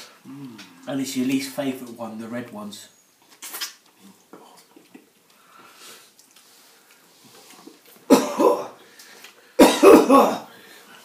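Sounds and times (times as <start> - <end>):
eating noises: 3.2 - 8.1
man coughing loudly: 8.1 - 8.7, 9.6 - 10.5.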